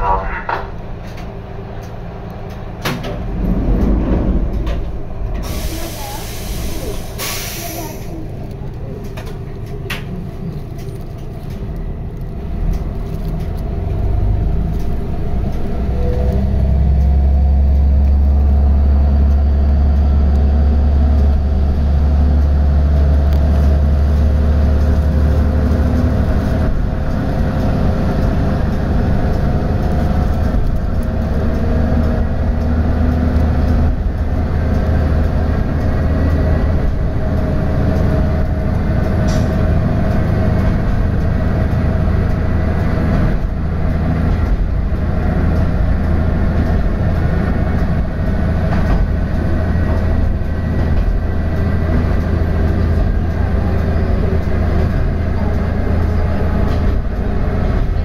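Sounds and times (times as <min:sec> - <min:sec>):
diesel engine drone: 0:00.0 - 0:58.0
wheels on rails: 0:00.8 - 0:58.0.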